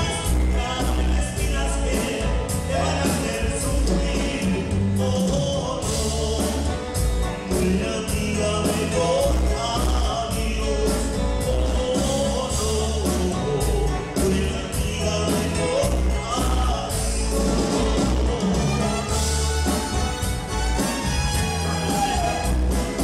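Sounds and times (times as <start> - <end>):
bass notes: 0.0 - 23.0
drum kit and percussion: 0.0 - 23.0
keyboard: 0.0 - 23.0
person singing: 0.0 - 23.0
saxophone: 17.1 - 23.0.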